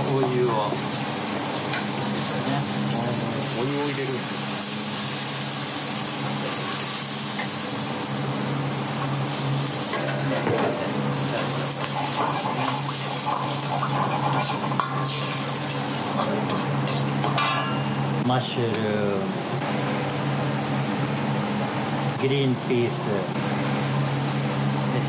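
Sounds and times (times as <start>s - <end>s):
chicken sizzling in water in wok: 0.0s - 18.2s, 19.6s - 25.0s
ladle scraping wok: 11.3s - 18.0s.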